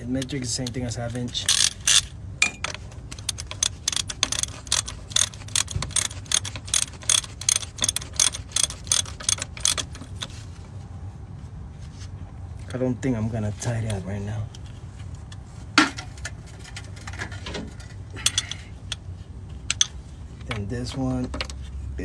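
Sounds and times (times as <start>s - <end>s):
socket ratchet clicking: 0.2s - 10.3s, 19.7s - 20.0s.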